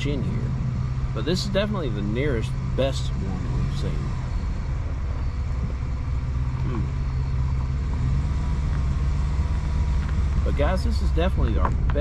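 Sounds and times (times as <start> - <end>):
car engine and tyres humming: 0.0 - 12.0.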